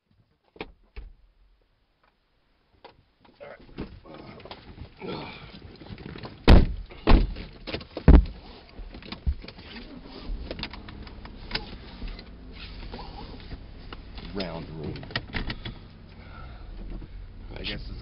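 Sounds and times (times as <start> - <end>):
car doors shutting: 6.3 - 17.2.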